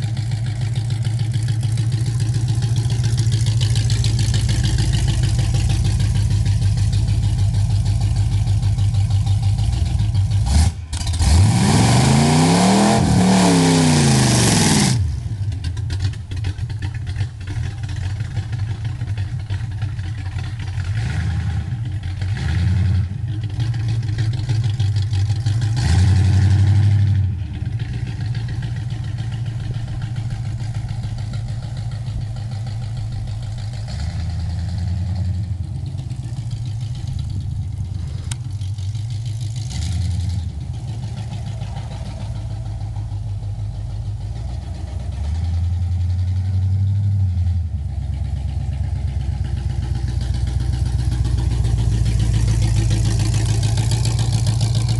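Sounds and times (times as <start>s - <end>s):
car engine idling and revving: 0.0s - 54.9s.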